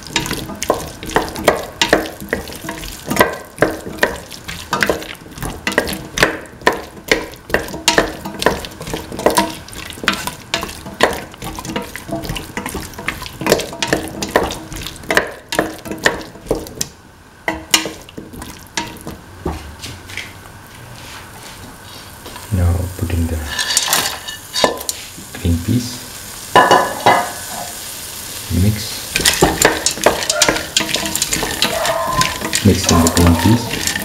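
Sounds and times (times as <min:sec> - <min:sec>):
light frying sizzle: 0:00.0 - 0:34.0
spatula scraping metal pan: 0:23.4 - 0:25.0.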